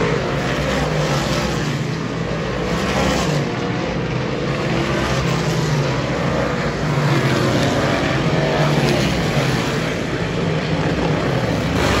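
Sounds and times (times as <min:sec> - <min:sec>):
race car engines: 0:00.0 - 0:12.0.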